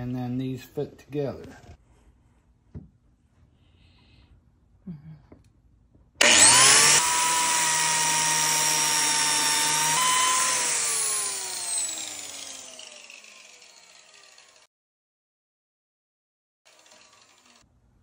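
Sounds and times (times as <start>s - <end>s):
biscuit joiner motor whining: 6.2s - 14.7s, 16.7s - 17.6s.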